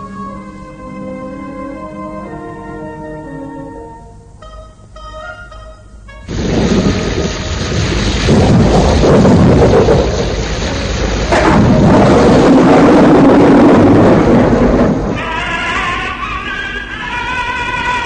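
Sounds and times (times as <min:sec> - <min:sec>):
waterfall roaring: 0:06.3 - 0:15.9.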